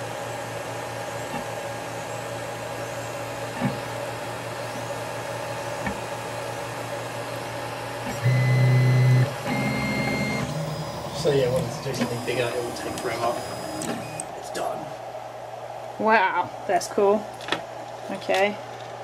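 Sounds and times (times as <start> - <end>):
printer motors and fans humming: 0.0 - 19.0
buzzing tone: 8.1 - 14.3.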